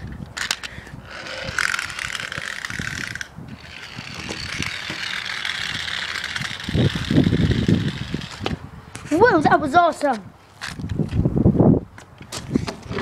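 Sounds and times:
toy car gearing whirring: 0.0s - 8.6s.

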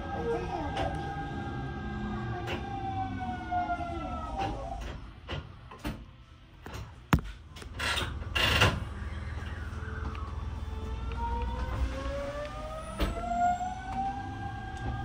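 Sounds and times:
electric train motor whine: 8.1s - 15.0s.

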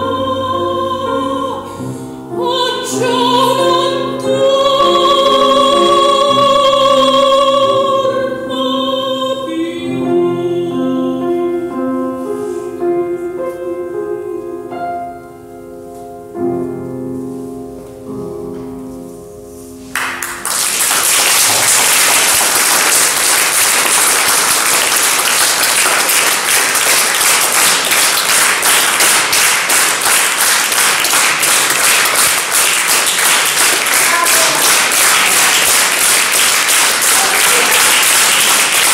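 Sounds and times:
piano chord: 0.0s - 38.9s
audience applauding: 19.9s - 38.9s.

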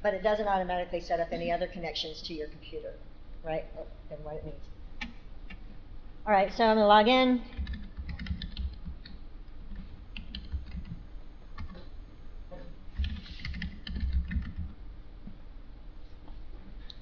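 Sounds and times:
keyboard typing: 7.5s - 11.0s, 11.6s - 11.9s, 13.0s - 15.4s.

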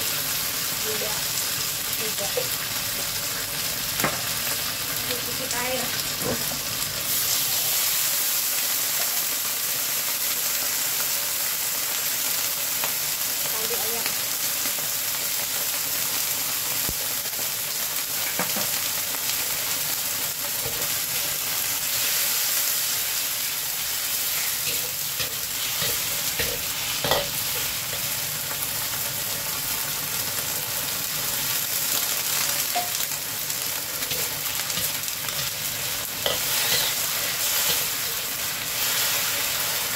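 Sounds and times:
sauce sizzling and bubbling in wok: 0.0s - 39.9s
metal spatula scraping wok: 24.3s - 28.1s, 34.0s - 38.2s.

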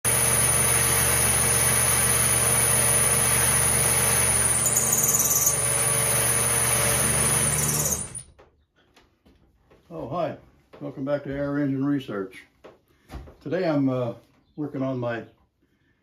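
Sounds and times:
mill-drill high whine: 0.1s - 8.3s.

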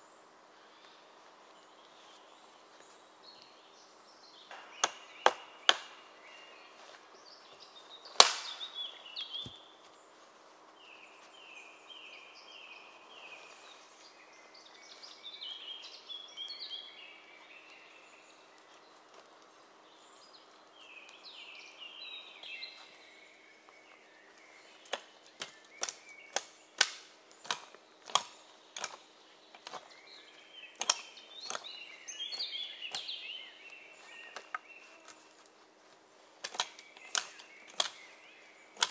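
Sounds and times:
birds singing: 0.0s - 38.9s
hatchet chopping wood: 8.2s - 8.6s.

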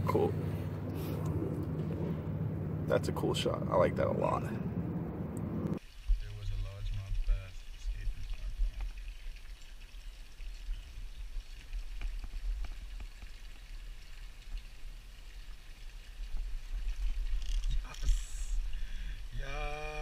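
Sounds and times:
low rumble: 0.0s - 5.8s.

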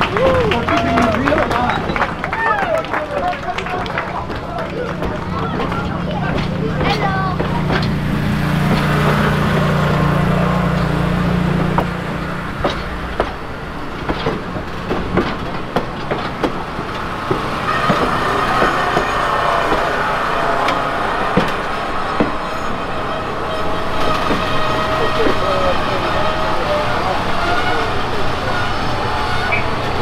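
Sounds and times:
train wheels knocking and clicking: 0.0s - 30.0s
high squeal from running gear: 17.6s - 30.0s.

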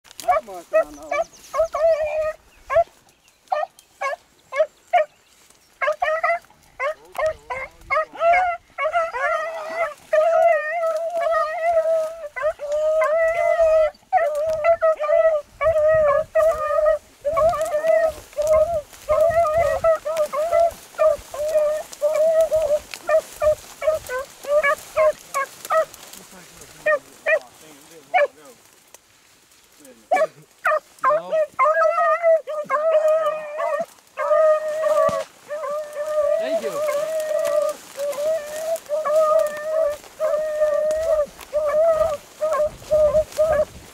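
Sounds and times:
dogs baying and barking: 0.1s - 28.6s, 30.0s - 43.9s.

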